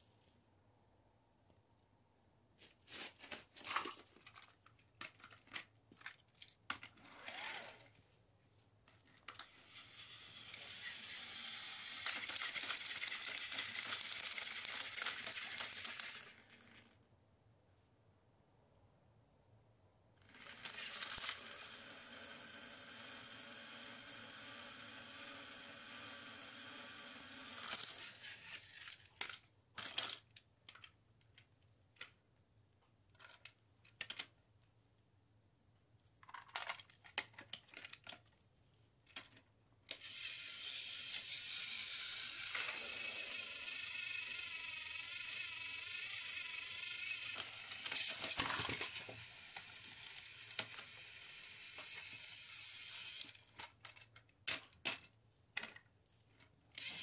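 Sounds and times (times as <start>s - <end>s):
toy train motor whirring: 2.6s - 8.0s, 8.9s - 17.1s, 20.2s - 31.0s, 33.1s - 34.4s, 36.3s - 38.3s, 39.1s - 55.8s, 56.7s - 57.0s
plastic toy track clicks: 2.9s - 7.9s, 8.9s - 17.0s, 20.2s - 32.2s, 33.1s - 34.4s, 36.2s - 38.4s, 39.0s - 57.0s.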